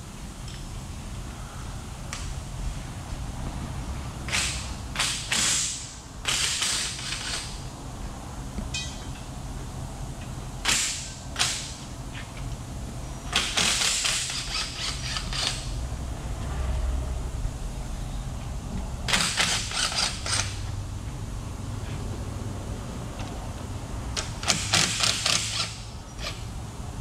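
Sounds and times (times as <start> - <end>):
ratchet wrench ratcheting: 13.4 - 15.7, 19.1 - 20.7, 24.2 - 26.4.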